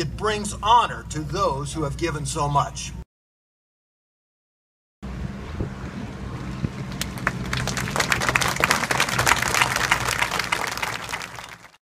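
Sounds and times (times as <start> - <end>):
propeller planes droning: 5.0 - 11.7
crowd clapping: 6.8 - 11.8.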